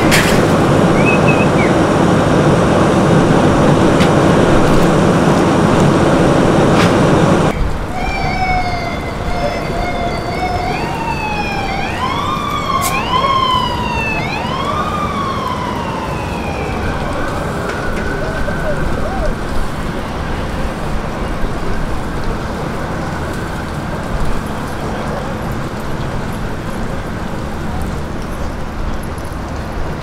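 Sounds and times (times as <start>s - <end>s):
steady rushing noise: 0.0s - 8.2s, 10.0s - 24.3s
emergency vehicle siren wailing: 0.0s - 28.5s.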